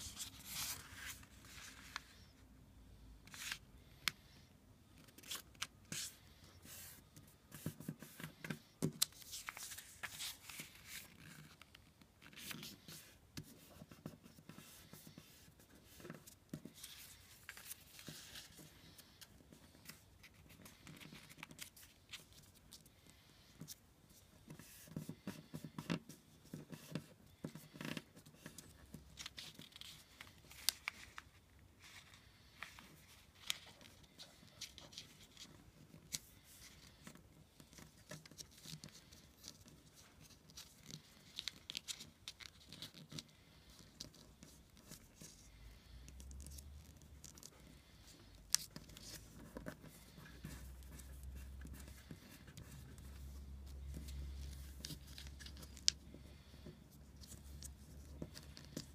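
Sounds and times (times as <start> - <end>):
paper being folded: 0.0 - 2.3, 5.0 - 22.8, 26.7 - 45.5.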